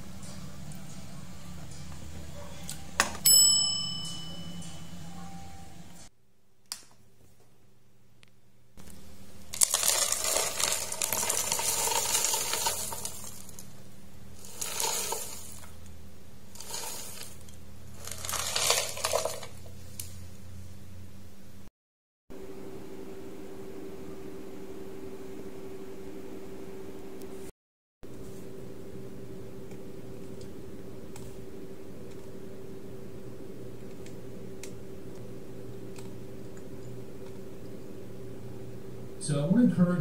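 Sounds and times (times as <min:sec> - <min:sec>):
glass clink: 0:03.2 - 0:04.9
granola pouring into bowl: 0:09.5 - 0:13.7, 0:14.4 - 0:15.7, 0:16.6 - 0:19.7.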